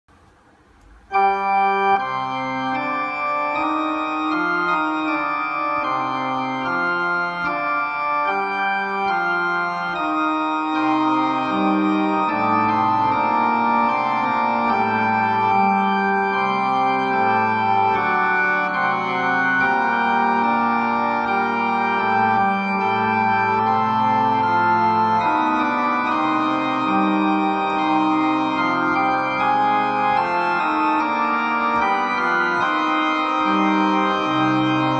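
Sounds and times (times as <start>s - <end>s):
electronic organ playing fugue: 0.9s - 34.9s.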